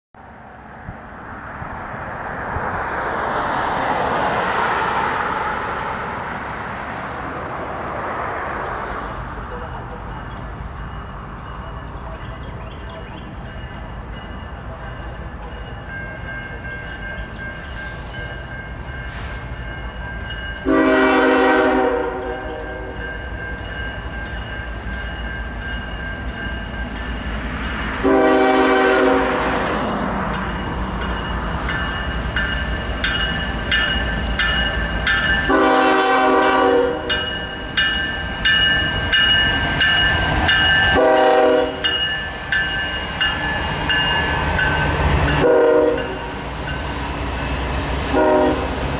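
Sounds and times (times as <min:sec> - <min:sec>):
locomotive engine rumble: 0:04.0 - 0:48.9
locomotive air horn blasts: 0:20.6 - 0:23.0, 0:28.0 - 0:29.5, 0:35.4 - 0:37.1, 0:40.9 - 0:42.0, 0:45.4 - 0:46.2, 0:48.1 - 0:48.8.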